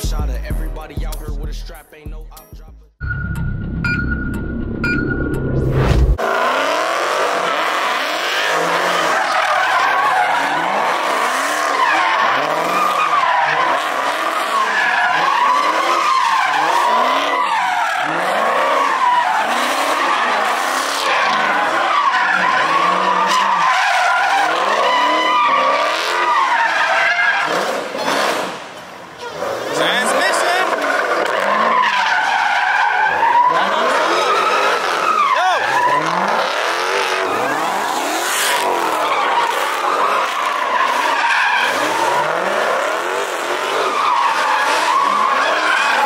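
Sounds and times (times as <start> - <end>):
car engines revving: 4.8 - 46.0
tyres squealing: 29.1 - 46.0.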